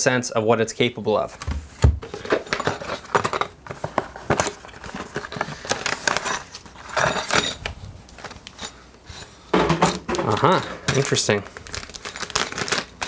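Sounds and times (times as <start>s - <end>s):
packaging rustling: 2.0s - 8.7s, 10.1s - 13.0s.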